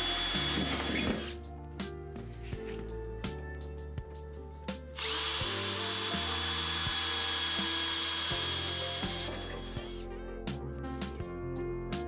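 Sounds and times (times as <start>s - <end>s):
cordless drill whining: 0.0s - 1.4s, 5.0s - 10.0s
background music: 0.0s - 12.0s.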